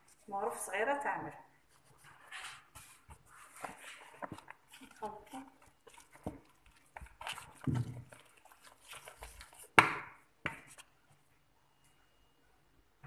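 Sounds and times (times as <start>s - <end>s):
wooden spoon scraping bowl: 1.9s - 9.7s.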